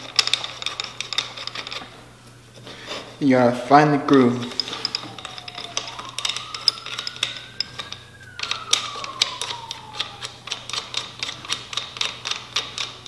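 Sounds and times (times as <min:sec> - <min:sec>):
ratchet wrench clicking: 0:09.2 - 0:13.0.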